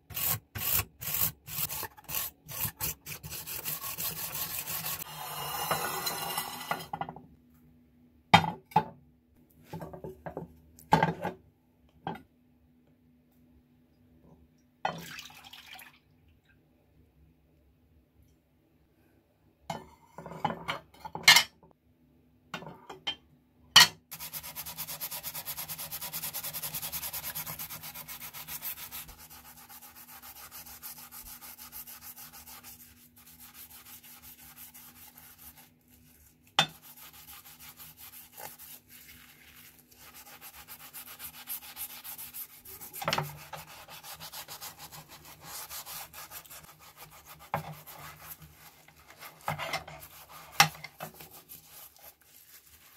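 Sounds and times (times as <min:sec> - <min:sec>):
scouring pad scrubbing blade: 0:00.0 - 0:06.6, 0:24.2 - 0:52.9.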